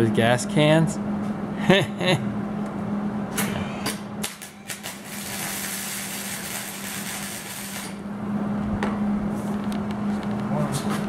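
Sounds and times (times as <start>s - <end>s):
electric arc welder crackling: 4.2s - 8.0s.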